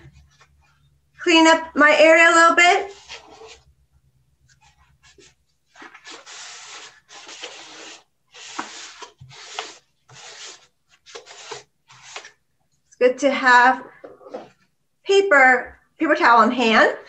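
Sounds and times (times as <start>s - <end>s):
paper towel scrubbing cardboard: 2.7s - 3.7s, 4.5s - 12.4s.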